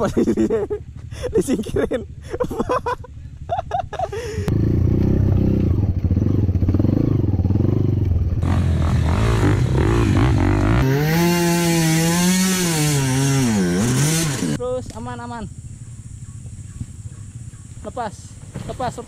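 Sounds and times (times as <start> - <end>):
motorcycle engine revving: 4.4 - 14.7.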